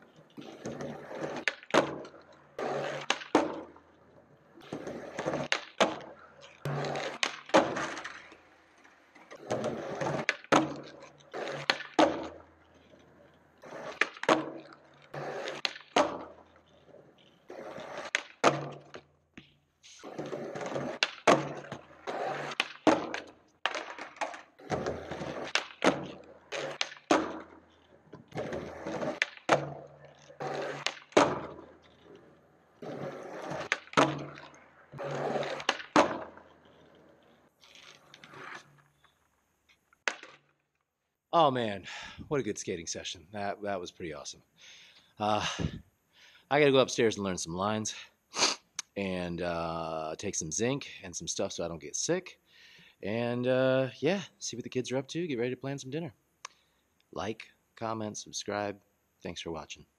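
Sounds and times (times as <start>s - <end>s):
skateboard tail clacking: 0.0s - 4.0s, 4.6s - 13.0s, 13.6s - 19.0s, 20.0s - 39.0s, 40.0s - 40.4s
skateboard wheels rolling on concrete: 0.0s - 40.8s, 48.3s - 52.3s
skateboard slapping down: 0.4s - 3.8s, 4.6s - 12.4s, 13.6s - 16.4s, 17.5s - 19.0s, 20.0s - 27.6s, 28.2s - 32.0s, 32.8s - 36.8s, 40.0s - 40.4s.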